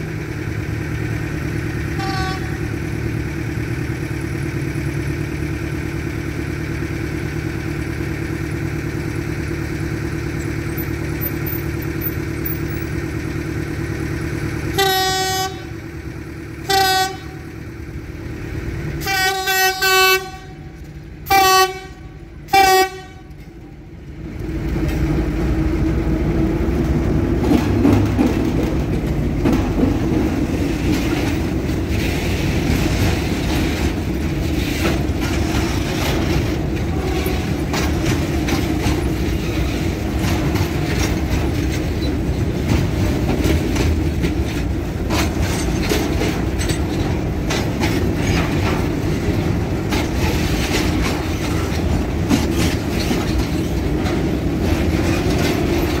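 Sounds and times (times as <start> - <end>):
train passing rumble: 0.0 - 56.0
train horn blasts: 2.0 - 2.7, 14.7 - 15.8, 16.6 - 17.4, 19.0 - 23.4.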